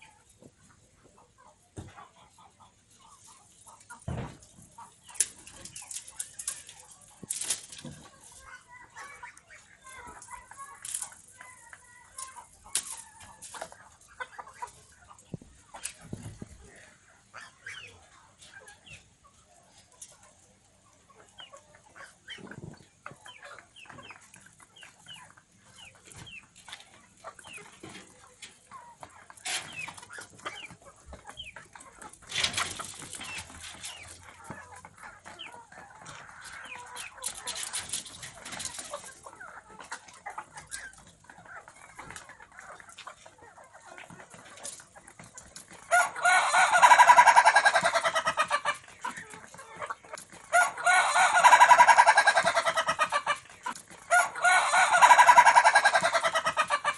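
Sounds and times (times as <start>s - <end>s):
rooster clucking: 45.7s - 56.9s.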